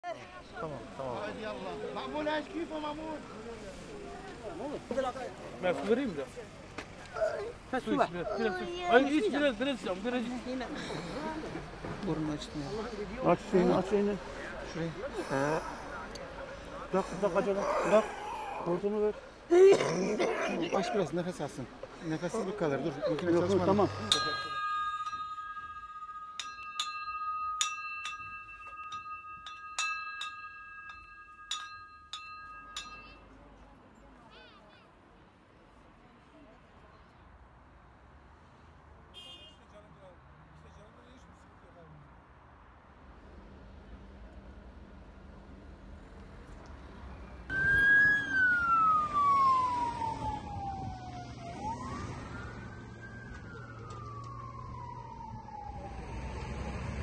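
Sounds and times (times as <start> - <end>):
glass shades clinking: 24.0 - 33.1
emergency siren wailing: 47.5 - 57.0.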